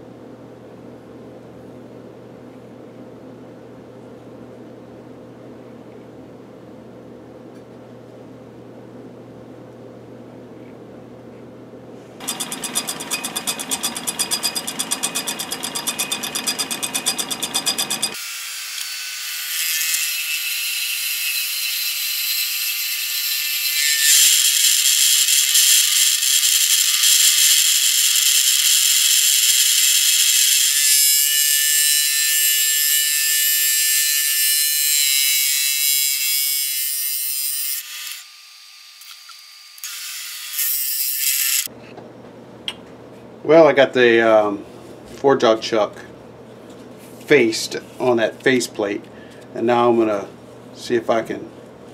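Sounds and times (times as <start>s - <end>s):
lathe rapid ticking: 12.2s - 18.2s
high hiss of cutting tool: 23.3s - 31.6s.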